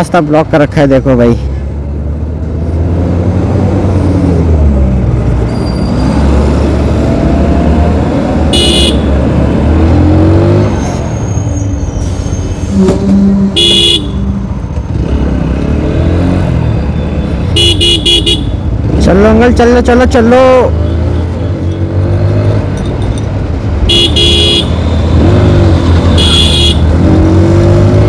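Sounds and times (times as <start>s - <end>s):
traffic engine drone: 0.0s - 28.0s
vehicle horn honking: 8.5s - 9.1s, 12.7s - 14.4s, 17.6s - 18.6s, 23.9s - 24.7s, 26.1s - 26.9s.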